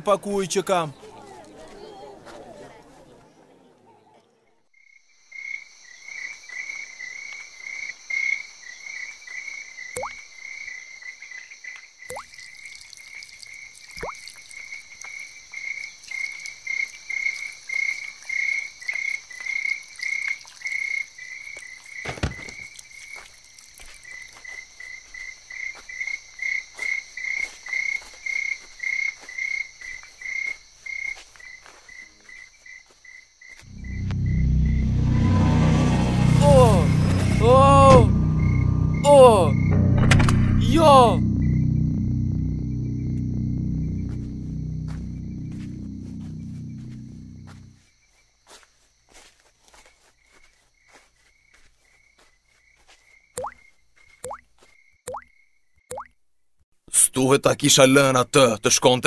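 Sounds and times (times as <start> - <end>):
insects or frogs chirping: 4.8 - 34.8, 41.2 - 56.1
high steady trill: 33.7 - 47.8.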